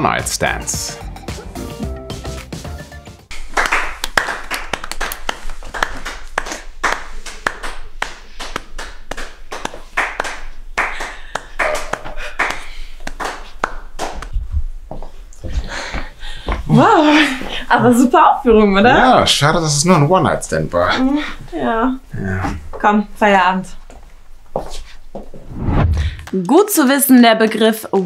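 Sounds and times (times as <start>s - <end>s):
background music: 0.0s - 3.7s
audience applauding: 3.3s - 14.2s.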